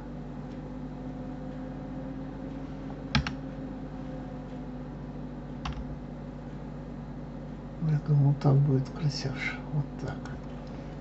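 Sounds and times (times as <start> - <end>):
steady low hum: 0.0 - 11.0
keyboard keys clicking: 3.1 - 3.4, 5.6 - 5.9.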